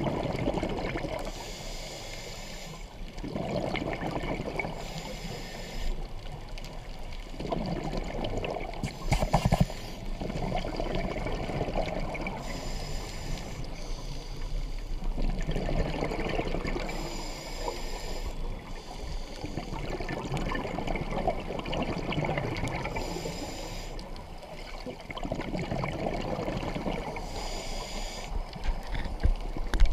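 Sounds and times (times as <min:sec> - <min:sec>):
scuba regulator hissing inhale: 0:01.2 - 0:03.0, 0:04.7 - 0:06.1, 0:08.9 - 0:10.2, 0:12.3 - 0:15.0, 0:16.8 - 0:19.9, 0:22.8 - 0:24.8, 0:27.0 - 0:28.5.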